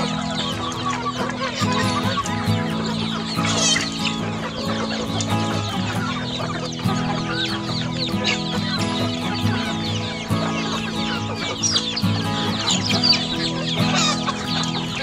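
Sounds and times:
chickens clucking: 0.0s - 15.0s
chicks peeping: 0.0s - 15.0s.

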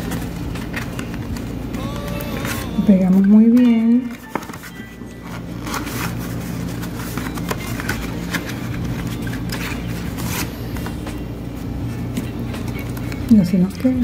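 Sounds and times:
paper rustles and taps: 0.0s - 11.2s.

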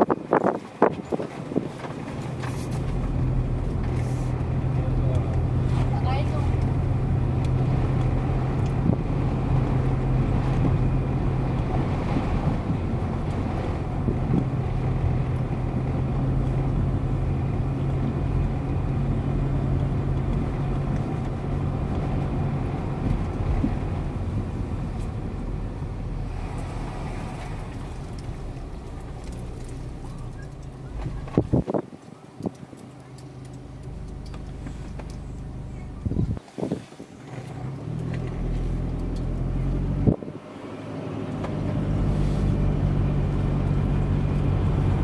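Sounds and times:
low engine hum: 0.0s - 45.0s
road rumble: 0.0s - 45.0s.

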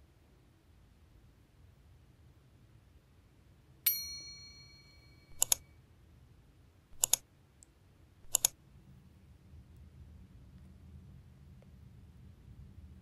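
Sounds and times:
synthetic chime ding: 3.9s - 5.4s
mouse clicks: 5.3s - 5.6s, 7.0s - 8.6s.

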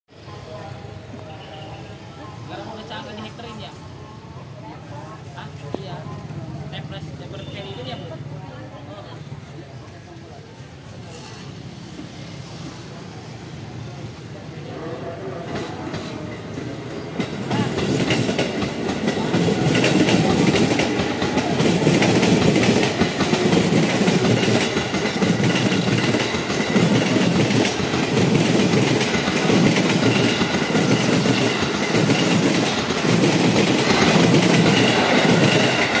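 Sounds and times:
train wheels clattering on rails: 15.5s - 36.0s.

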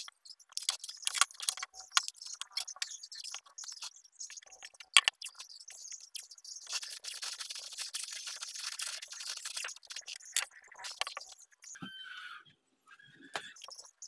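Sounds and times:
masking tape peeling: 6.7s - 10.1s.

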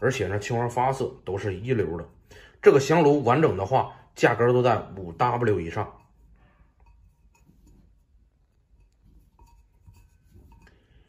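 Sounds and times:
porcelain scraping on cloth: 5.8s - 11.0s.

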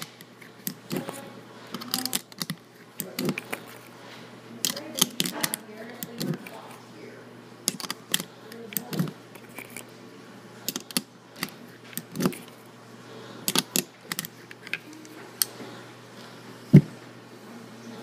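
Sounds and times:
cartridges clicking and clinking: 13.5s - 15.5s.

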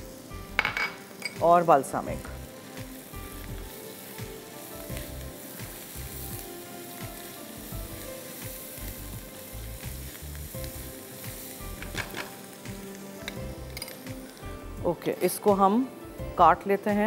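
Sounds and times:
onions and mushrooms sizzling in pan: 0.0s - 17.0s.

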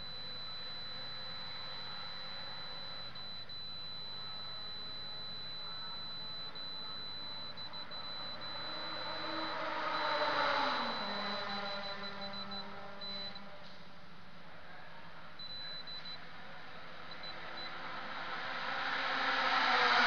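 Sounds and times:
low steady hum: 0.0s - 18.2s
steady high-pitched whine: 0.0s - 20.0s
car passing: 6.0s - 13.6s, 16.9s - 20.0s.

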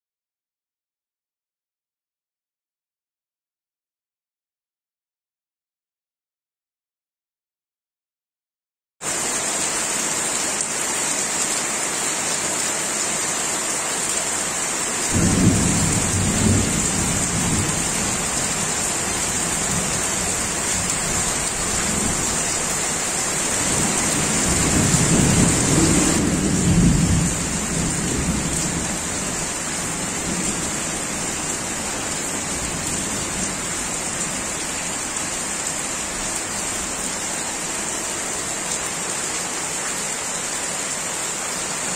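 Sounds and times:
steady rain hiss: 9.0s - 41.9s
rolling thunder: 15.1s - 22.4s, 23.6s - 29.3s.

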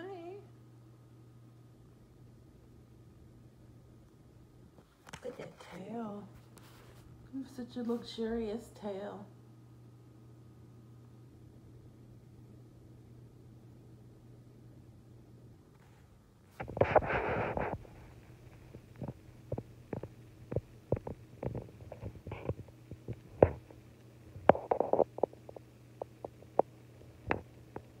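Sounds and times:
dog snuffling: 16.6s - 18.2s
small clicks and gurgles: 16.6s - 28.0s.

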